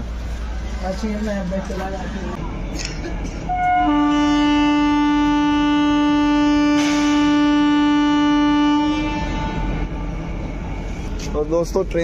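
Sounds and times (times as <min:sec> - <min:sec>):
locomotive horn blast: 0:03.5 - 0:10.4.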